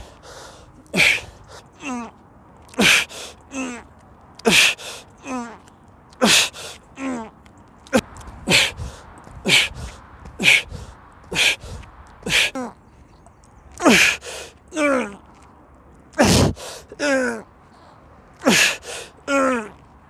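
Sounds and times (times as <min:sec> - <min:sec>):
man grunting: 0:01.0 - 0:02.1, 0:16.2 - 0:17.4.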